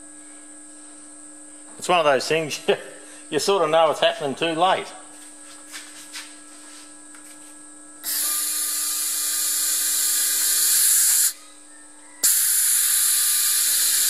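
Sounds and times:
welding gas hissing: 8.0 - 11.4, 12.2 - 14.0.

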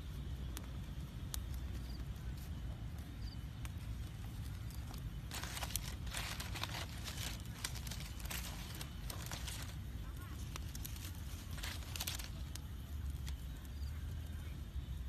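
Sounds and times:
steady low rumble: 0.0 - 15.0
straw fire crackling: 0.0 - 15.0
straw rustling: 3.7 - 13.6.

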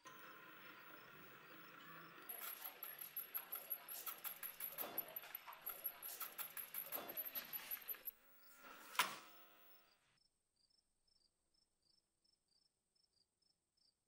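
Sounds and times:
drill motor hum: 0.0 - 10.0
metallic clicking of drill bit: 2.2 - 8.1.

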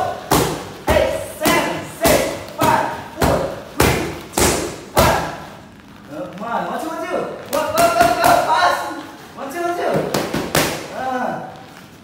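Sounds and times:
kicks smacking kick pads: 0.2 - 5.4.

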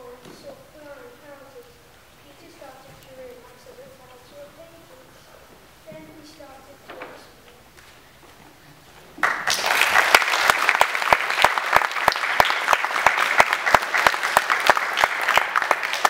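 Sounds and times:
audience applauding: 9.2 - 16.0
close claps in steady beat: 9.2 - 16.0.

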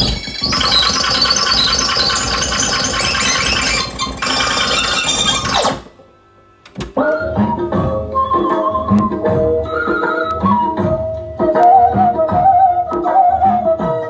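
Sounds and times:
tape deck fast-winding: 0.0 - 5.9.

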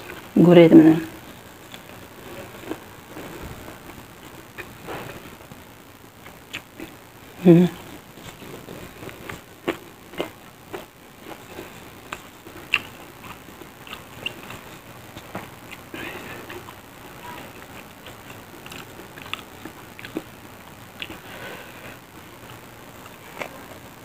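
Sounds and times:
person chewing: 1.3 - 5.4, 6.2 - 7.0, 7.9 - 23.8
mouth clicks and smacks: 6.2 - 7.0, 8.2 - 20.4
person humming: 7.4 - 7.8.

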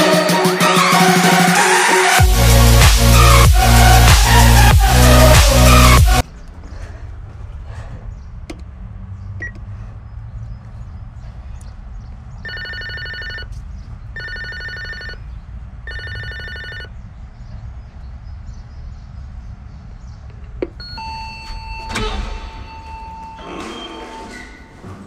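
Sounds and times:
intercom electronic trilling ring: 12.5 - 13.5
door release buzzing: 21.0 - 25.0.

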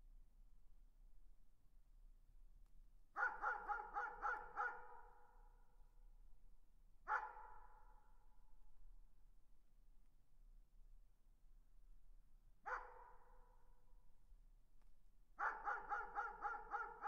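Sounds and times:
distant dog barking: 3.2 - 5.1, 7.1 - 7.6, 12.7 - 13.3, 15.4 - 17.0.

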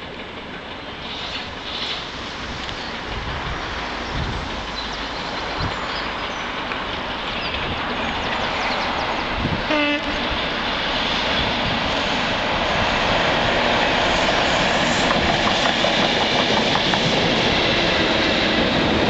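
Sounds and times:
train rumbling: 0.0 - 19.0
locomotive horn toot: 9.7 - 10.3.

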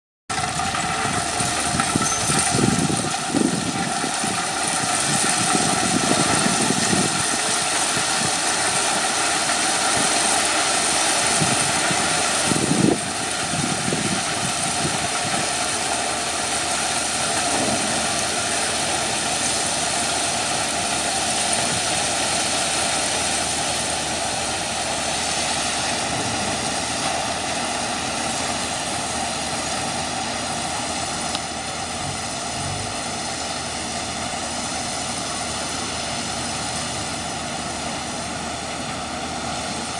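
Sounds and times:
diesel locomotive engine running: 0.3 - 39.9
low rumbling bursts: 9.9 - 34.5.

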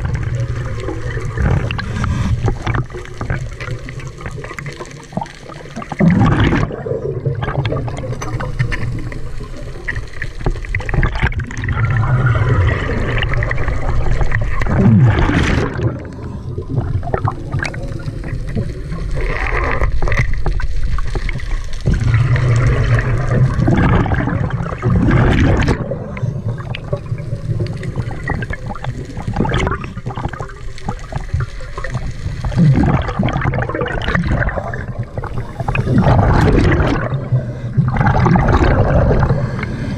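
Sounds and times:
exhaust bubbles gurgling: 0.0 - 39.9
diver breathing through regulator: 35.2 - 39.9.

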